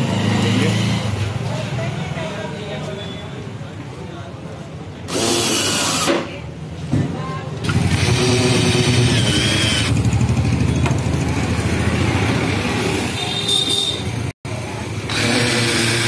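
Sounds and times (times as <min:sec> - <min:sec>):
cordless drill driving screws: 0:05.1 - 0:06.2, 0:07.6 - 0:10.0, 0:15.1 - 0:16.0.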